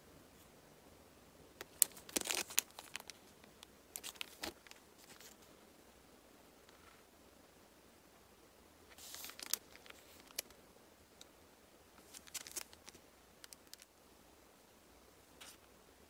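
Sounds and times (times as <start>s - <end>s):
plastic sleeve crinkling: 1.6s - 5.5s, 8.9s - 10.6s, 12.0s - 13.9s.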